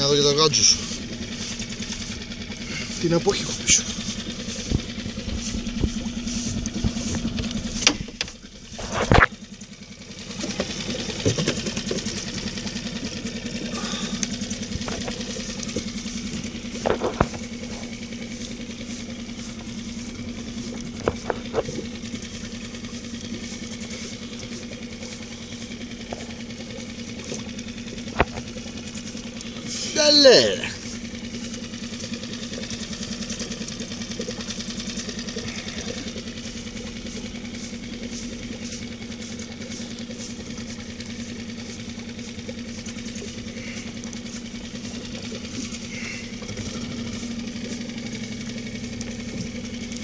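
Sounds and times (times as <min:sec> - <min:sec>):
boat engine idling: 0:00.0 - 0:50.0.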